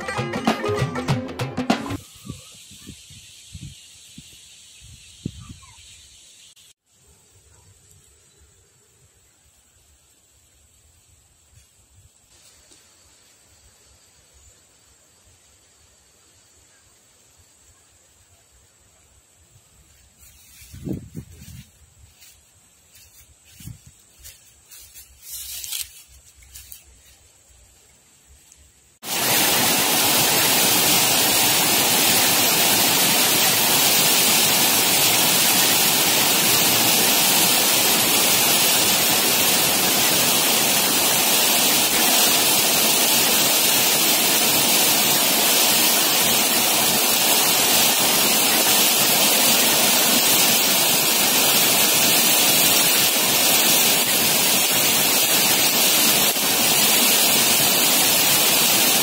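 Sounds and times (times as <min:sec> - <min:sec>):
heavy rain pouring: 0:29.0 - 0:59.0
water streaming off awning: 0:29.0 - 0:59.0.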